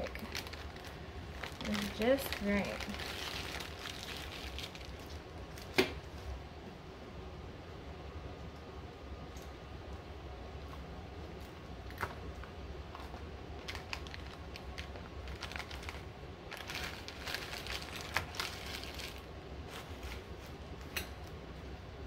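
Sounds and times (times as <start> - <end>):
paper liners crinkling: 0.0 - 5.6, 13.0 - 20.3
low steady hum: 0.0 - 22.0.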